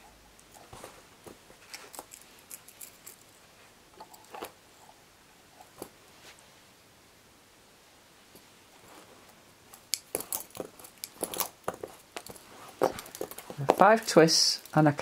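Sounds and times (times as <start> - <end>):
lace bobbins clicking together: 0.3 - 3.4, 9.7 - 15.0.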